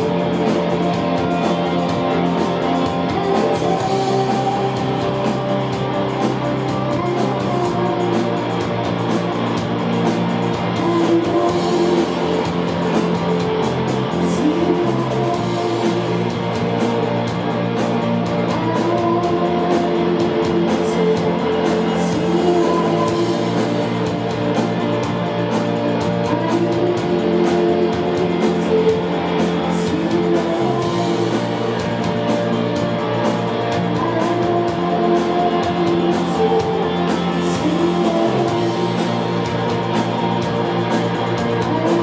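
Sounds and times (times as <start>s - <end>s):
bass line: 0.0s - 42.0s
electric guitars: 0.0s - 42.0s
woman singing: 2.9s - 5.2s, 6.6s - 8.7s, 10.8s - 12.5s, 14.2s - 16.2s, 18.4s - 23.8s, 26.2s - 32.0s, 33.8s - 39.1s, 41.5s - 42.0s.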